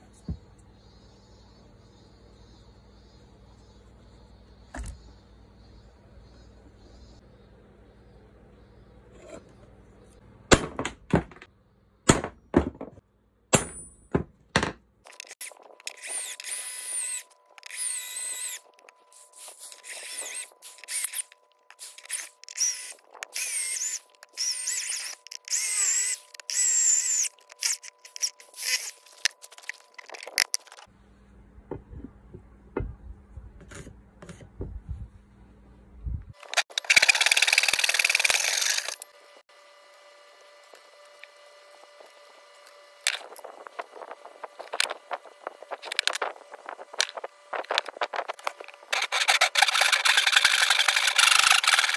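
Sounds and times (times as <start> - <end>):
tools knocking on workbench: 12.2 - 13.0
electric drill whining into steel: 15.2 - 30.0, 36.5 - 39.2, 48.9 - 51.9.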